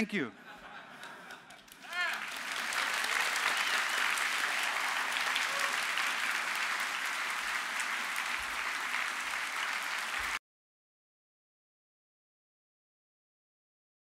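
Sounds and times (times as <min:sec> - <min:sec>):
large audience applauding: 0:01.0 - 0:10.4.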